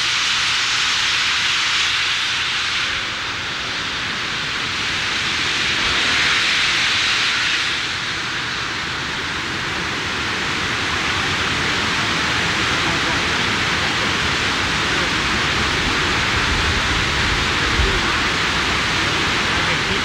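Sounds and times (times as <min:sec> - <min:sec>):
steam hissing: 0:00.0 - 0:20.0
waterfall rushing: 0:11.1 - 0:20.0.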